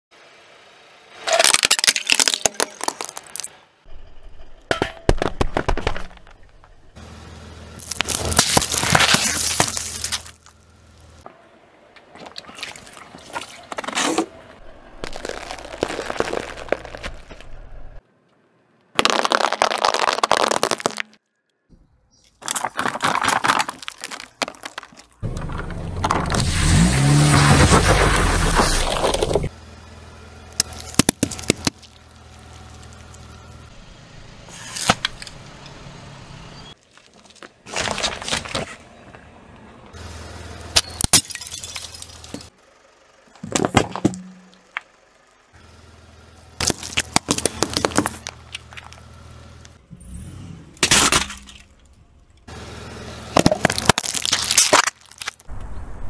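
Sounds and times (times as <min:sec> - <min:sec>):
tyre crushing objects: 0:07.8 - 0:10.5, 0:15.0 - 0:17.5, 0:19.0 - 0:21.2, 0:22.4 - 0:29.5, 0:46.6 - 0:49.0, 0:53.4 - 0:55.5.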